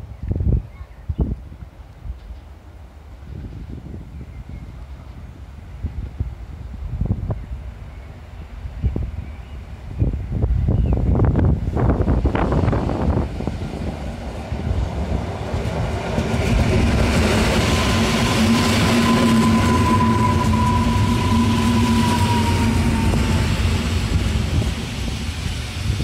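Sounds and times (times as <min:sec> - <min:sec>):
train high whine: 0:02.2 - 0:26.0
train wheels rolling on rails: 0:11.1 - 0:26.0.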